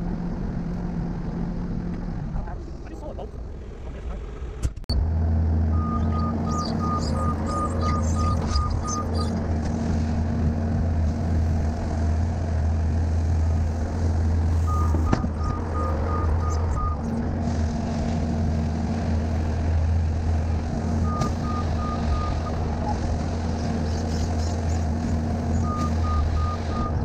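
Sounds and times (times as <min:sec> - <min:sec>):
loader engine running: 0:00.0 - 0:27.0
back-up alarm beeping: 0:05.7 - 0:09.2, 0:14.6 - 0:17.0, 0:21.0 - 0:22.6, 0:25.6 - 0:27.0.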